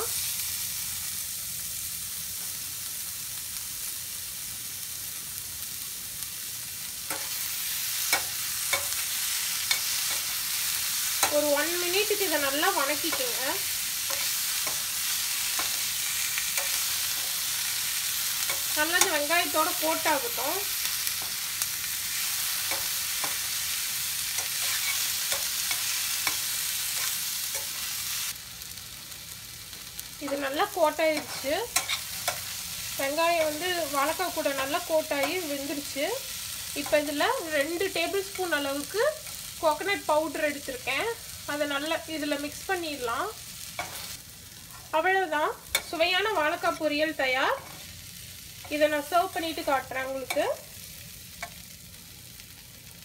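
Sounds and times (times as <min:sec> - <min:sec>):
food sizzling in oil: 0:00.0 - 0:53.0
metal spoon tapping and scraping pan: 0:07.1 - 0:07.4, 0:08.1 - 0:09.0, 0:09.6 - 0:10.3, 0:14.1 - 0:14.9, 0:15.5 - 0:15.9, 0:16.5 - 0:17.4, 0:18.4 - 0:19.3, 0:22.6 - 0:23.5, 0:24.4 - 0:27.8, 0:31.1 - 0:32.5, 0:43.8 - 0:44.0, 0:45.7 - 0:46.0
metal spoon clicking against pan: 0:08.1 - 0:09.0, 0:31.2 - 0:32.5, 0:51.4 - 0:51.6.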